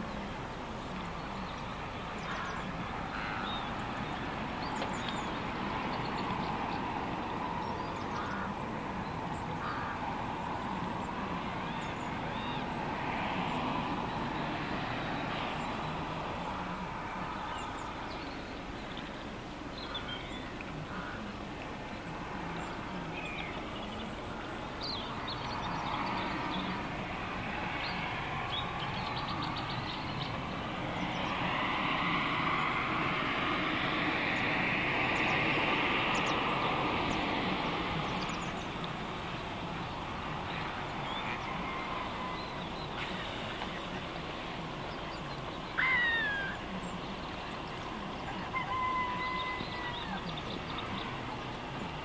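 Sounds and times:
distant road traffic hum: 0:00.0 - 0:52.0
waterfowl calling: 0:08.1 - 0:08.6, 0:09.6 - 0:10.1, 0:45.5 - 0:46.7.

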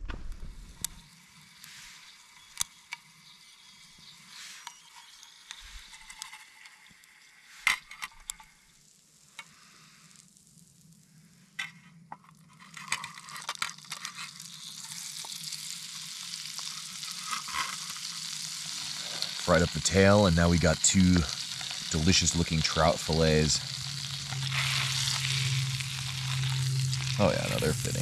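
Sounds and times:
food sizzling in a frying pan: 0:12.6 - 0:28.0.

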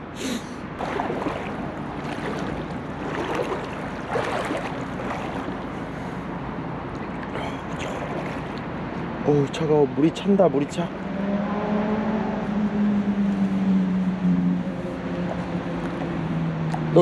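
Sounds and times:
water swishing around legs: 0:00.3 - 0:09.2, 0:14.6 - 0:16.5.

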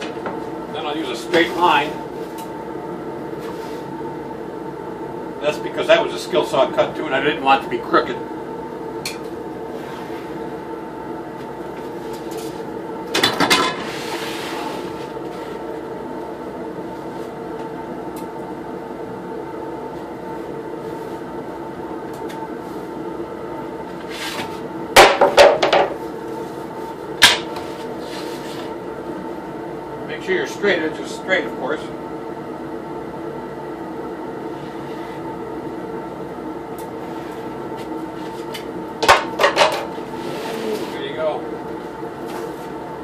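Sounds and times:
steady hum: 0:00.0 - 0:43.0.

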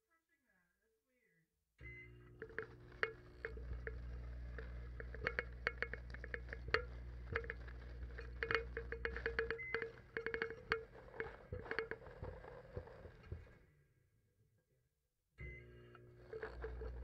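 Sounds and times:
low electrical hum: 0:01.8 - 0:13.6, 0:15.4 - 0:17.0
sharp crackles and pops: 0:02.2 - 0:13.6.

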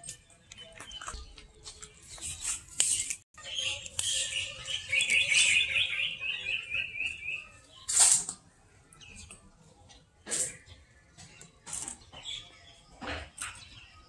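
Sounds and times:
bird chirping: 0:00.0 - 0:08.0.

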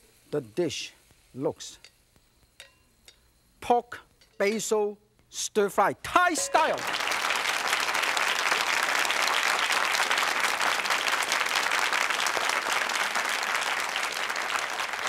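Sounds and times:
studio audience applauding: 0:06.4 - 0:15.0.

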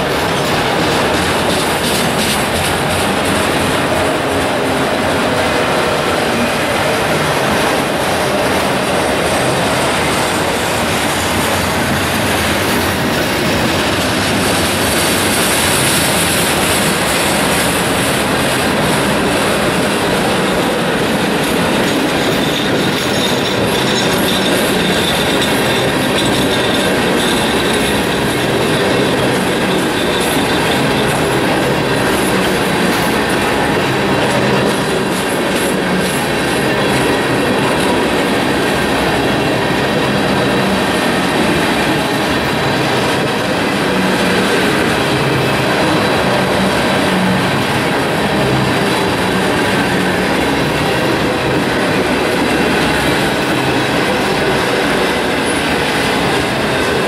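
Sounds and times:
freight train wheels clattering: 0:00.0 - 0:57.0
wheel squeal: 0:22.1 - 0:31.4.

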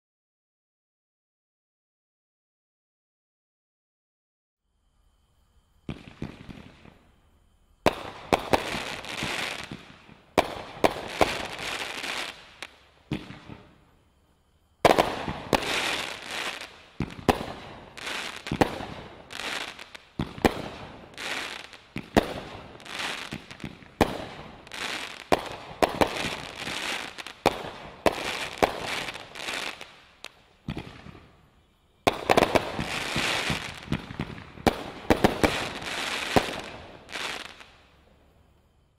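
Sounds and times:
fireworks shots: 0:05.8 - 0:07.1, 0:07.8 - 0:13.9, 0:14.8 - 0:37.8.

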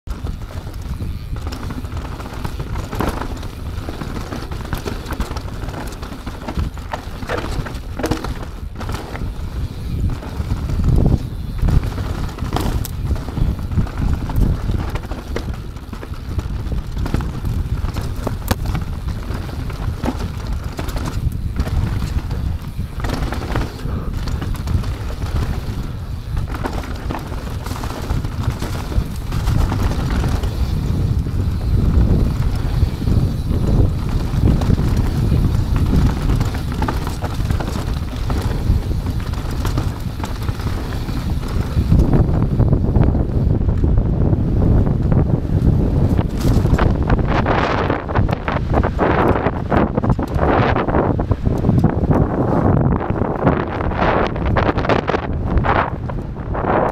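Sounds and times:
tyres and wind rumbling: 0:00.0 - 0:56.9
bike clattering and rattling: 0:00.1 - 0:56.9.

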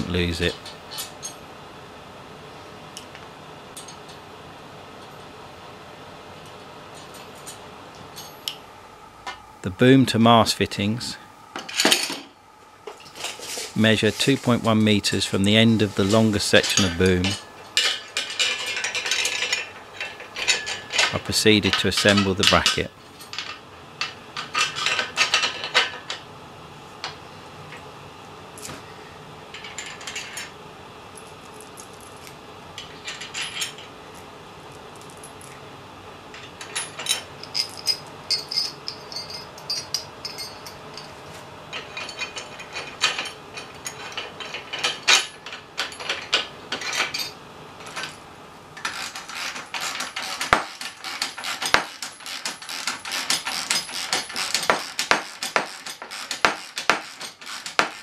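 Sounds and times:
metal bolts clinking: 0:15.9 - 0:26.2, 0:36.4 - 0:48.2.

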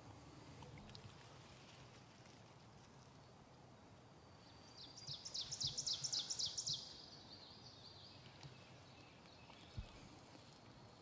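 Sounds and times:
songbird singing: 0:04.1 - 0:11.0.

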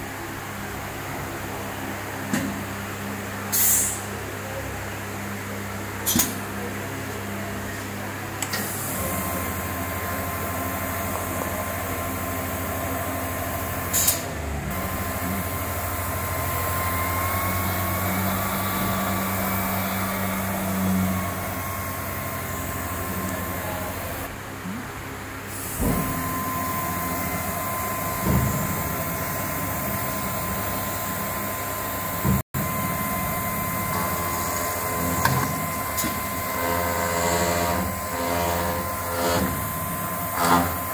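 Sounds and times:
router machine humming: 0:08.8 - 0:24.3, 0:25.5 - 0:40.9.

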